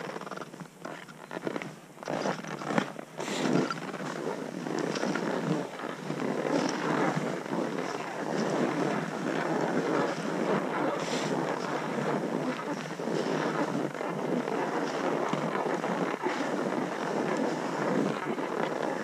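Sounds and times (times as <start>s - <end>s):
skis sliding over snow: 0.1s - 19.0s.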